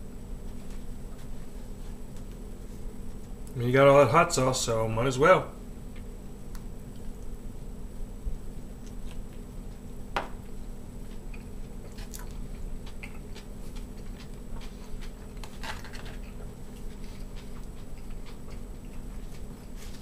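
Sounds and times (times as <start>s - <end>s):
person chewing: 6.0s - 7.4s, 8.6s - 9.8s, 11.0s - 20.0s.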